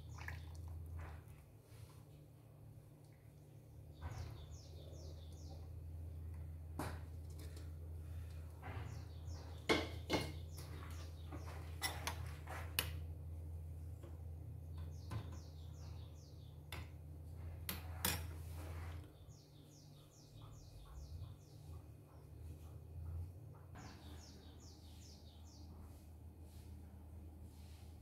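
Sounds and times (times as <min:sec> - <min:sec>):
bird chirping: 0:03.9 - 0:05.8, 0:19.2 - 0:26.0.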